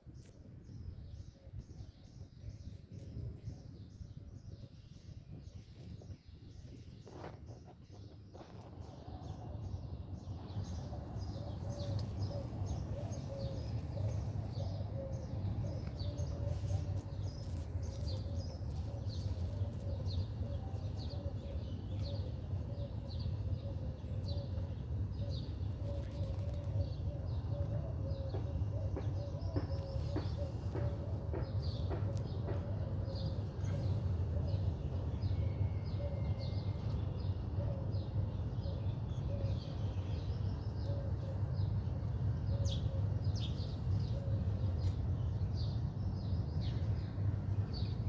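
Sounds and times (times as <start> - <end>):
steady low rumble: 0.0 - 36.0
small birds chirping: 0.0 - 48.0.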